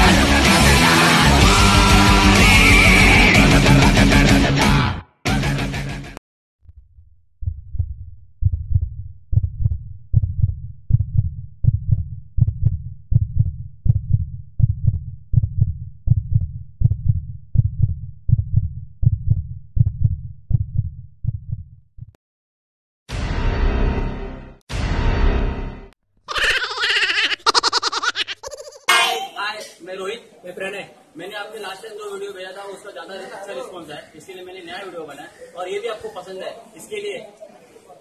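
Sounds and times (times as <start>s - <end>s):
heartbeat thumps: 6.7s - 22.2s.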